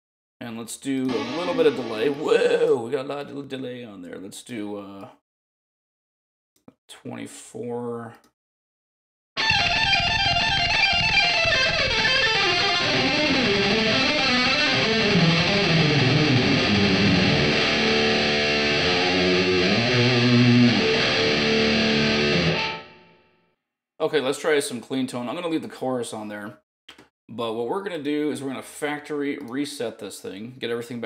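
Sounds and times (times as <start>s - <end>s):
electric guitar lead: 1.0s - 2.8s, 9.4s - 23.3s.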